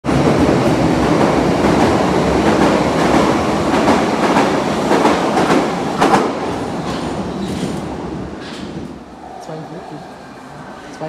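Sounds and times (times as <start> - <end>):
train wheels rumbling on rails: 0.0 - 9.7.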